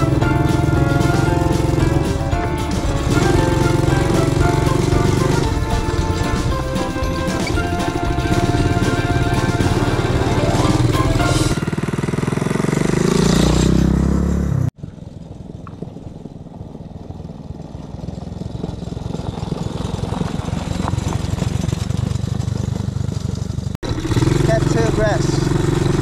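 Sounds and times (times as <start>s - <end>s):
atv engine running: 0.0s - 26.0s.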